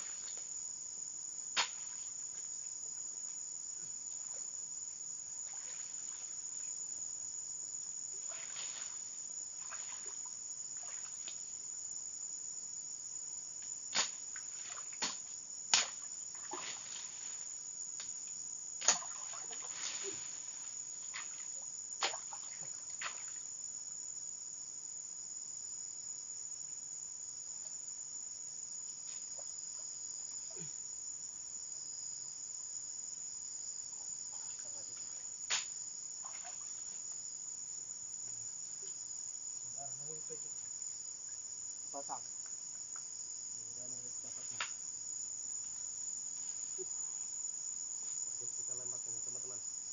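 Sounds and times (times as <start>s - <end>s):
high-pitched insect chorus: 0.0s - 49.9s.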